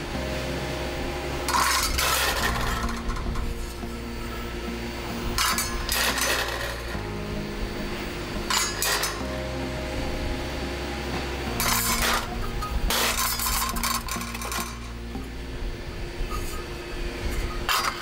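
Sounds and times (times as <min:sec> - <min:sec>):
background music: 0:00.0 - 0:18.0
metal plates clinking and scraping: 0:01.4 - 0:04.4, 0:05.3 - 0:07.0, 0:08.4 - 0:09.3, 0:11.6 - 0:15.0, 0:16.3 - 0:18.0.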